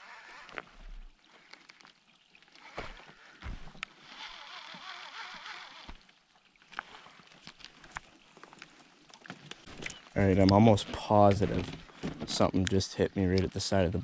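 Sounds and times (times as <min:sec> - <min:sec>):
fishing reel whirring: 0:00.0 - 0:00.6, 0:03.9 - 0:06.0.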